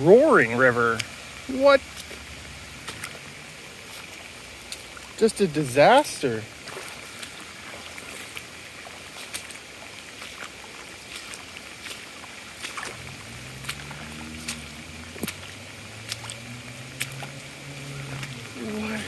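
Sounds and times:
floodwater rushing: 0.0 - 19.0
sharp clicks and splashes: 0.0 - 19.0.

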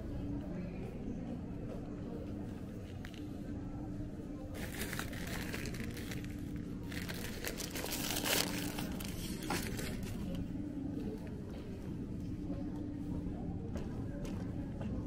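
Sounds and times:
plastic wrapper crinkling: 4.5 - 10.3.

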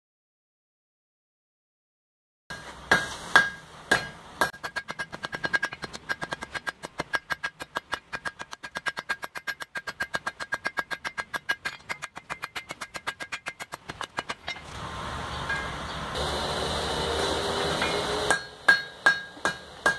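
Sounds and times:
hammer striking steel on anvil: 2.5 - 14.7, 15.4 - 15.9, 17.6 - 19.9.

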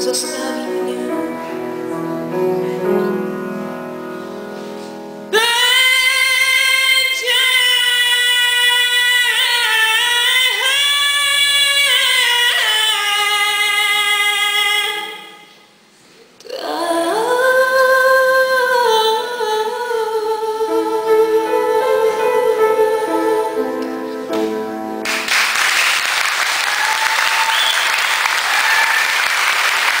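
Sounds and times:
audience applauding: 25.0 - 30.0.

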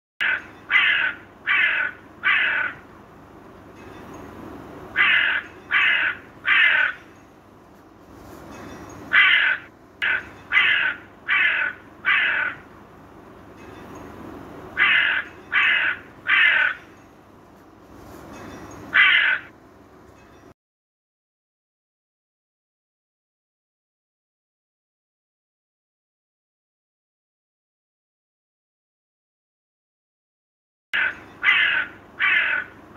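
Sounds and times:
crow cawing: 0.2 - 2.8, 5.0 - 7.0, 9.1 - 12.7, 14.8 - 16.9, 19.0 - 19.5, 31.0 - 32.8.

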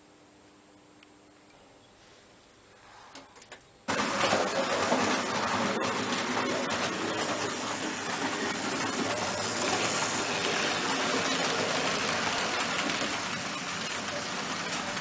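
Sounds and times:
model train running on track: 3.9 - 15.0.

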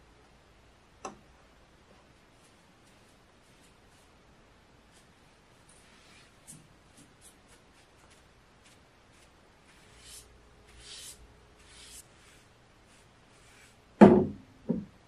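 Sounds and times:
sponge rubbing on wooden table: 9.2 - 13.8.

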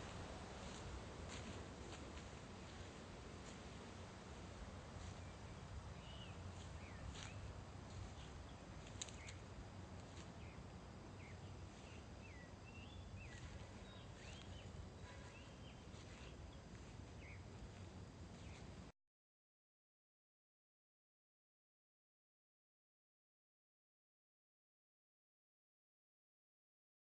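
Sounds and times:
bird chirps: 6.0 - 9.4, 11.2 - 17.5
soft clicks: 8.8 - 9.4.

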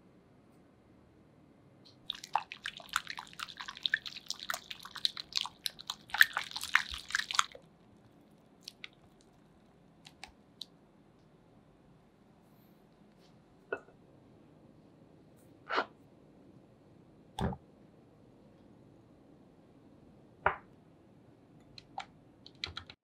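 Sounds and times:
wet food mixture squishing: 1.9 - 9.5.

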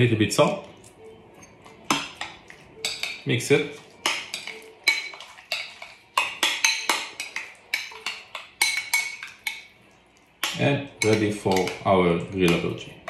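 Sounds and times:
spoon clinking in glass bowl: 1.3 - 9.7, 10.4 - 11.9.

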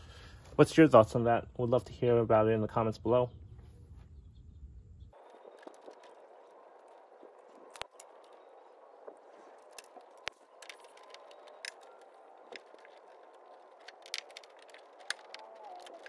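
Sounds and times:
hand tools clicking on wire: 9.5 - 16.0.

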